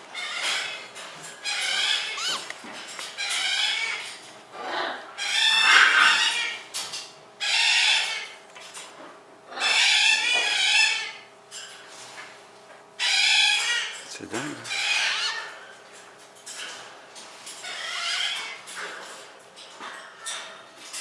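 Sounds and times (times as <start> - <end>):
parrot squawking: 1.4 - 2.6, 3.2 - 6.6, 13.0 - 15.5.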